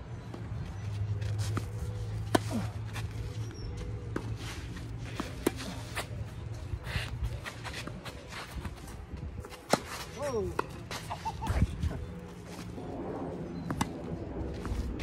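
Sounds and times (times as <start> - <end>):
steady low hum: 0.0 - 15.0
shoes scuffing on court: 0.4 - 11.7.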